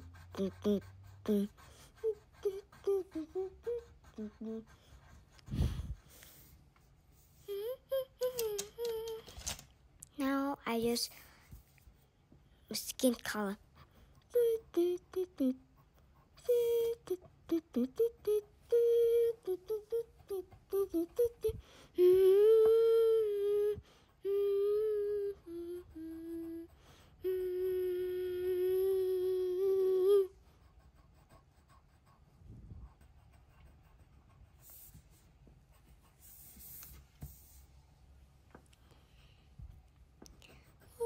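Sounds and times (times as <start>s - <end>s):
child humming: 0.0s - 6.0s, 7.4s - 9.5s, 14.2s - 30.4s
pencil scratching on paper: 0.0s - 7.4s, 13.0s - 21.5s, 30.3s - 37.7s.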